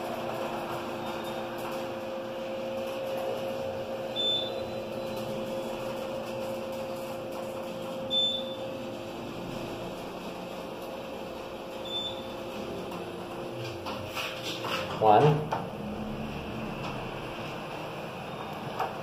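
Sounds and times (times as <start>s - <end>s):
elevator hum: 0.0s - 19.0s
short high beeps: 4.1s - 5.4s, 8.1s - 8.6s, 11.8s - 12.3s.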